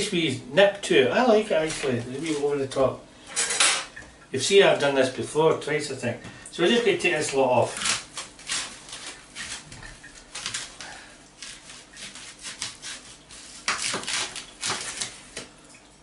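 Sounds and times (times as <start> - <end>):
knife cutting on chopping board: 7.8 - 15.4.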